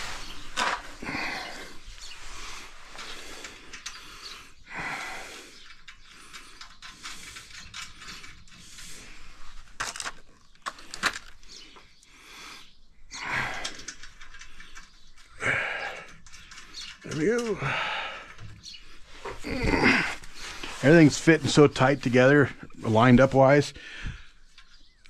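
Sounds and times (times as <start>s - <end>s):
metal clicks and rattling: 2.9s - 4.4s, 5.5s - 11.9s, 13.4s - 19.4s.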